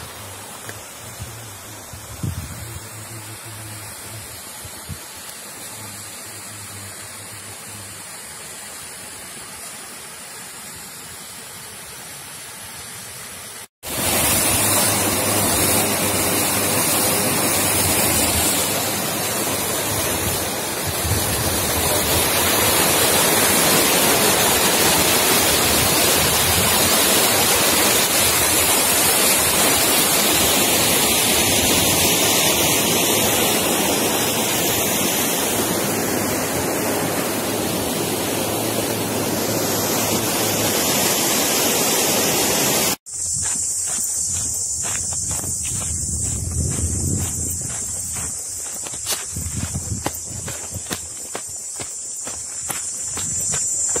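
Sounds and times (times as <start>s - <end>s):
steady rushing noise: 13.8s - 32.8s, 42.1s - 54.0s.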